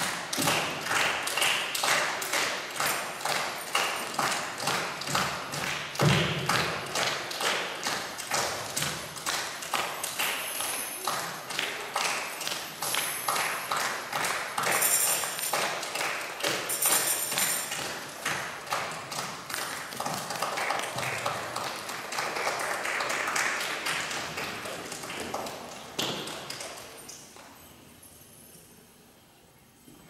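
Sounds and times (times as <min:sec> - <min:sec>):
percussion dance rhythm: 0:00.0 - 0:22.2
tambourine jingles: 0:02.0 - 0:07.3, 0:08.0 - 0:19.0, 0:26.4 - 0:30.0.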